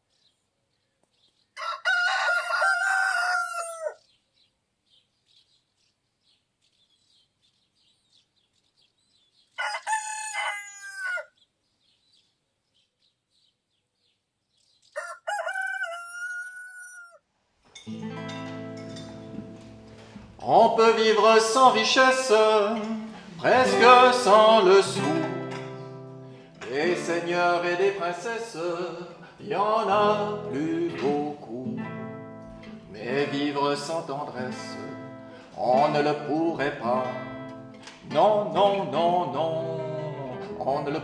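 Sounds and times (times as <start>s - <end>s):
small birds chirping: 0.0s - 1.6s, 4.0s - 9.7s, 11.3s - 15.1s
rooster crowing: 1.6s - 4.0s, 9.6s - 11.4s, 15.0s - 17.2s
music: 17.8s - 41.0s.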